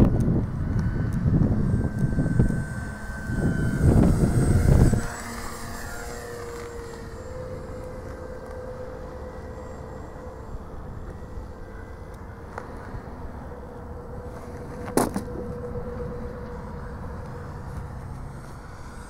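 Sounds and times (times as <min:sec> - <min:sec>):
wind rumble on microphone: 0:00.0 - 0:08.6
model plane motor whine: 0:00.0 - 0:19.0.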